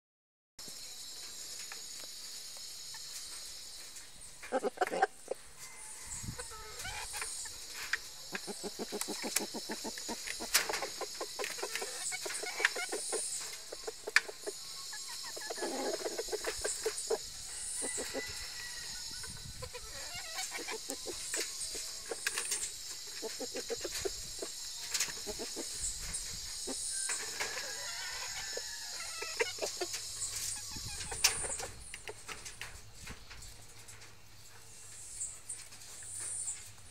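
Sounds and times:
steady high hiss: 0.6 - 36.9
chickens clucking: 2.9 - 36.9
beaks tapping feed tub: 6.8 - 17.2.

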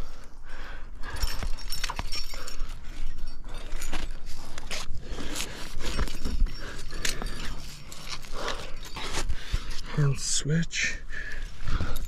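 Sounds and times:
climbing gear clinks: 0.7 - 10.4, 11.3 - 12.0
scraping and rustling on rock: 1.3 - 10.0.

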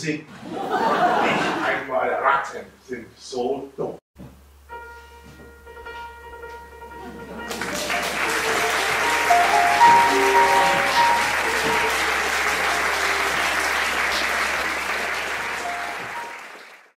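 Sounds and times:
held musical notes: 4.5 - 16.9
audience applauding: 7.4 - 17.0.

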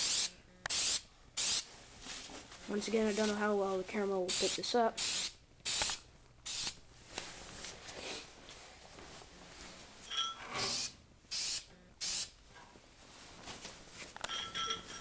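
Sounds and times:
spray paint can hissing: 0.0 - 1.7, 4.3 - 6.8, 10.7 - 12.4.

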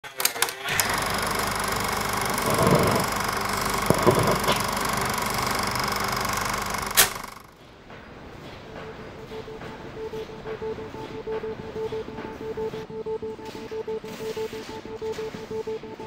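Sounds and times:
film projector clattering: 0.0 - 7.6.

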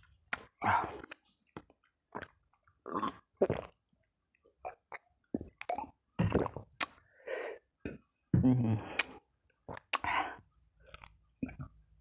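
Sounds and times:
gulps from a bottle: 4.6 - 6.7.

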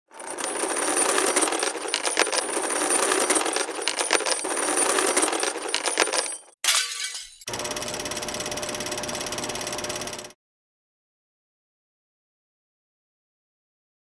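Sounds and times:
metal chains rattling: 0.1 - 7.5.

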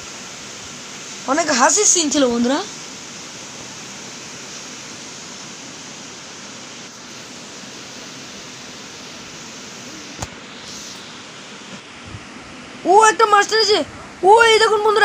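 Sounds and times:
sharp click: 10.2 - 10.4.

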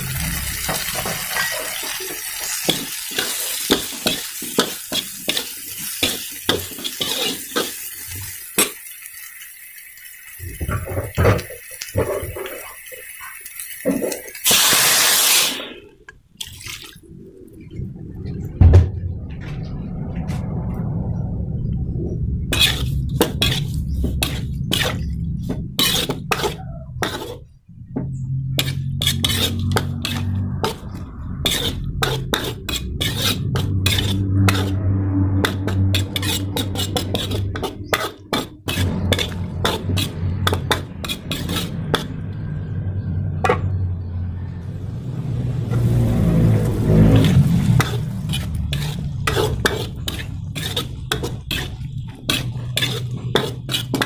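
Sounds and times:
sizzling hiss: 0.0 - 15.9
spatula scraping metal wok: 0.4 - 8.8, 22.5 - 43.8, 45.5 - 54.0
low hum: 17.0 - 53.7.

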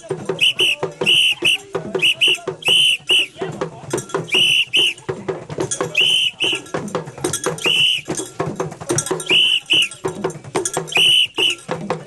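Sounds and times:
crowd voices: 0.0 - 12.0
fast percussive beat: 0.0 - 12.0
whistle blasts: 0.3 - 3.4, 4.2 - 5.0, 5.9 - 6.7, 7.6 - 8.2, 9.2 - 10.0, 10.9 - 11.7.

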